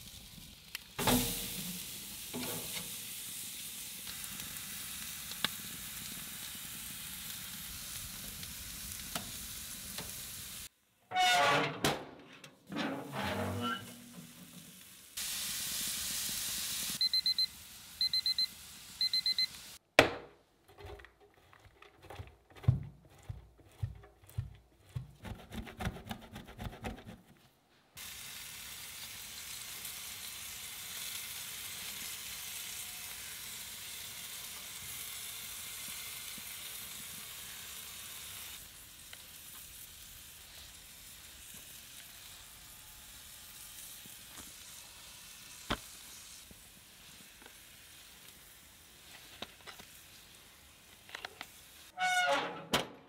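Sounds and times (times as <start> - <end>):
meat sizzling on a grill: 0.0 - 10.7, 13.6 - 19.8, 28.0 - 51.9
thermometer beeping: 17.0 - 19.6.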